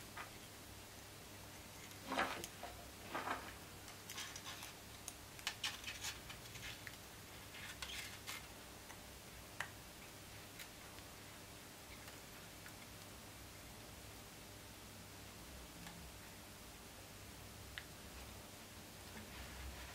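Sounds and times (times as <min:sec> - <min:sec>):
cable rustling: 0:01.6 - 0:08.5.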